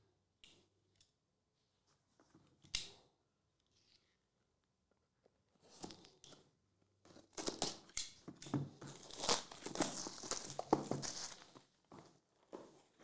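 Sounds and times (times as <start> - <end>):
plastic wrap crinkling: 8.8 - 11.7.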